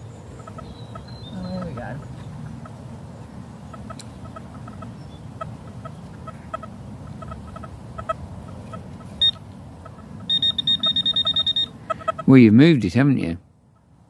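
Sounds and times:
metal detector beeping: 0:09.2 - 0:09.4, 0:10.3 - 0:11.8.

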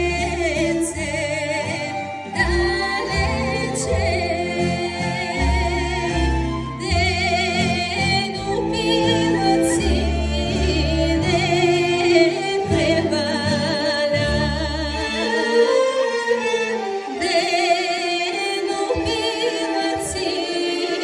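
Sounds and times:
folk orchestra of strings: 0:00.0 - 0:21.0
woman singing folk song: 0:00.0 - 0:21.0.

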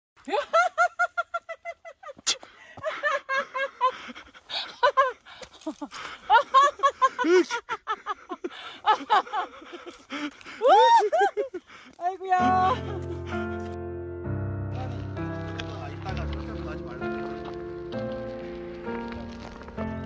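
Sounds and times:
woman laughing and squealing: 0:00.2 - 0:13.0.

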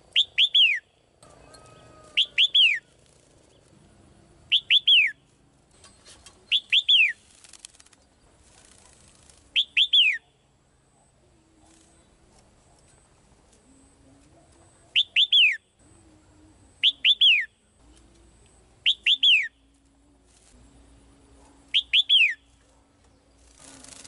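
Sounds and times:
bird singing descending notes: 0:00.1 - 0:03.7, 0:04.5 - 0:05.2, 0:16.7 - 0:17.7, 0:18.8 - 0:19.7, 0:21.7 - 0:22.6.

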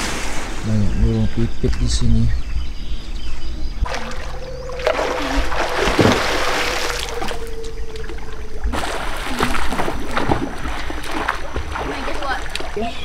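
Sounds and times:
pool water splashing and lapping: 0:03.8 - 0:13.0.

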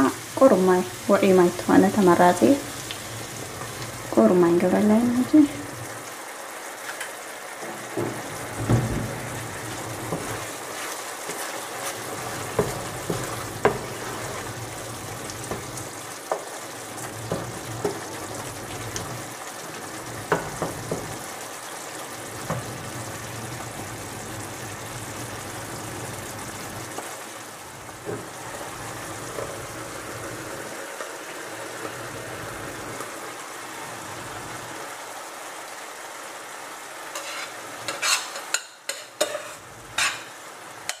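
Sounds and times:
vegetables sizzling in a frying pan: 0:00.0 - 0:41.0
wooden spatula scraping a pan: 0:07.8 - 0:14.7, 0:37.1 - 0:41.0.

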